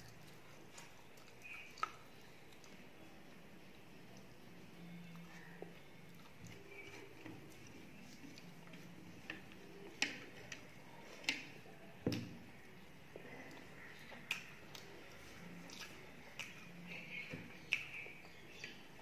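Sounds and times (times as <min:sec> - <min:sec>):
person chewing: 0:00.0 - 0:02.8, 0:13.4 - 0:17.0
sharp clicks and wet smacks: 0:00.0 - 0:02.8, 0:13.4 - 0:18.9.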